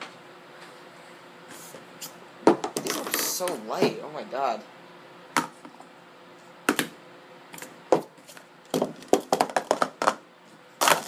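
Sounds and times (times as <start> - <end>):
plastic cups clacking: 8.8 - 10.2.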